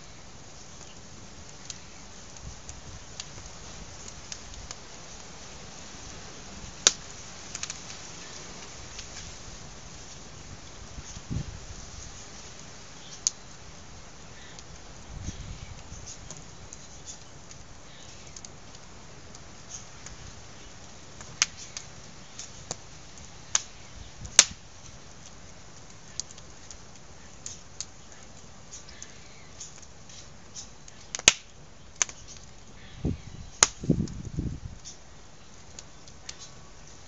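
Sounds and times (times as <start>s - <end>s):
wood fire crackling: 0.0s - 37.0s
sharp pops of fire: 6.1s - 10.1s, 12.6s - 13.5s, 14.4s - 28.0s, 28.7s - 32.6s, 33.5s - 35.0s.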